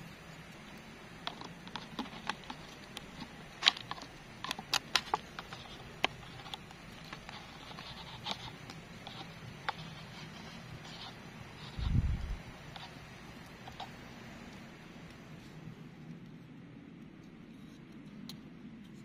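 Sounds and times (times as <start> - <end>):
chopsticks stirring noodles: 0.1 - 11.8.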